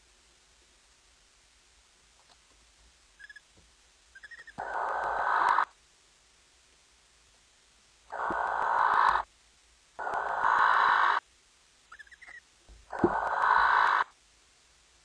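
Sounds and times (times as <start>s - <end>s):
owl short quick calls: 4.2s - 5.7s, 8.1s - 9.3s, 10.0s - 11.2s, 11.9s - 14.1s
owl hissing screeches: 4.2s - 5.8s, 8.1s - 9.3s, 10.0s - 11.3s, 11.9s - 14.2s.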